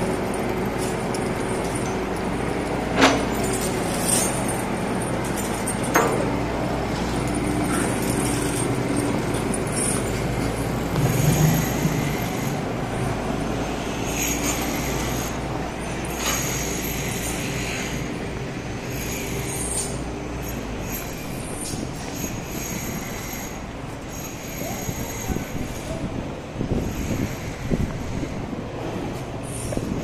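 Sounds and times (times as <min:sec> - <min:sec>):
traffic hum: 0:00.0 - 0:30.0
vehicle passing close by: 0:10.4 - 0:14.6.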